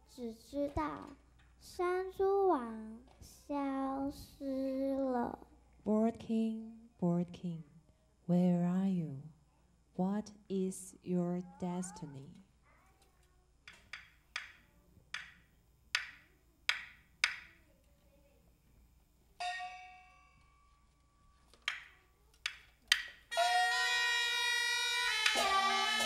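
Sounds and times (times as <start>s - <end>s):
wooden clapper strikes: 13.7s - 17.6s, 21.6s - 24.0s
loud shawm playing: 23.3s - 26.0s.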